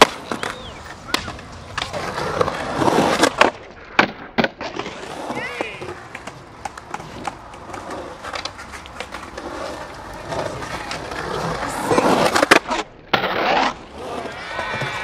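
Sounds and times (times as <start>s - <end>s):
skateboard clacking on ramp: 0.0s - 13.3s
skateboard wheels rolling on concrete: 0.0s - 15.0s.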